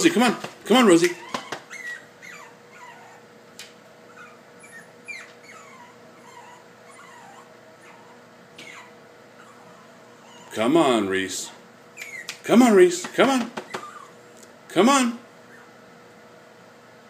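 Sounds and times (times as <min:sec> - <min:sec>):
puppy whimpering: 0:00.8 - 0:03.4, 0:04.0 - 0:10.9, 0:11.9 - 0:12.5, 0:13.4 - 0:14.4, 0:15.4 - 0:15.8.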